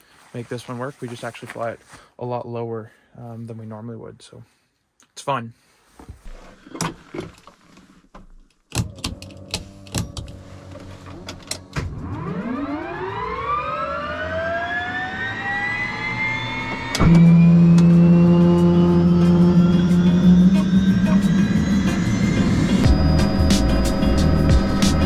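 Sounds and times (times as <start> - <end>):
turbine starter whine: 10.6 - 25.0
helicopter turbine engine hum: 15.9 - 25.0.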